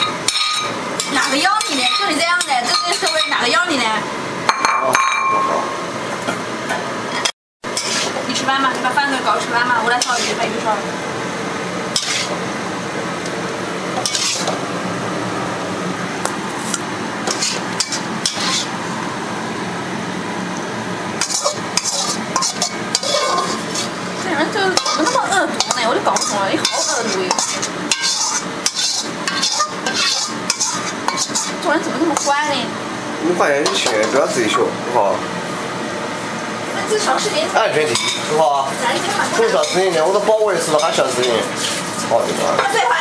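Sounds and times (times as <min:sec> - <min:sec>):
spatula scraping and clattering: 0:00.0 - 0:03.5, 0:07.1 - 0:08.3, 0:09.8 - 0:10.5, 0:11.9 - 0:12.4, 0:14.0 - 0:14.6, 0:16.6 - 0:18.8, 0:21.2 - 0:32.5, 0:33.6 - 0:34.2, 0:37.9 - 0:38.4, 0:39.0 - 0:42.8
food sizzling in a wok: 0:00.0 - 0:04.0, 0:07.7 - 0:33.0, 0:35.6 - 0:43.0
metal spatula stirring in a wok: 0:00.3 - 0:02.1, 0:07.8 - 0:08.2, 0:10.0 - 0:10.4, 0:12.0 - 0:12.4, 0:14.0 - 0:14.6, 0:16.6 - 0:18.7, 0:21.2 - 0:32.5, 0:39.6 - 0:39.9.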